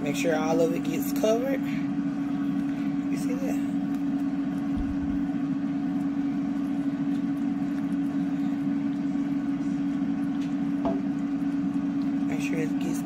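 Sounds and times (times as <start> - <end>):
kitchen appliance fan humming: 0.0 - 13.0.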